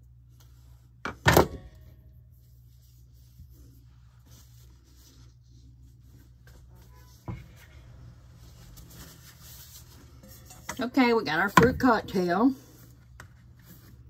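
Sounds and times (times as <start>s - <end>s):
low steady hum: 0.0s - 14.0s
hands rustling on countertop: 2.3s - 10.7s.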